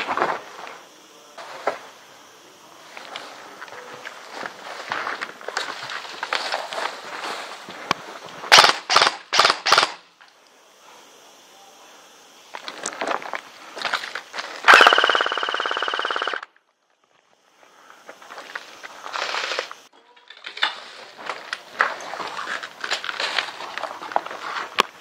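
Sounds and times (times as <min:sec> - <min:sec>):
gearbox whine: 0:00.0 - 0:19.9
airsoft gun rapid firing: 0:08.5 - 0:10.0, 0:14.7 - 0:16.5.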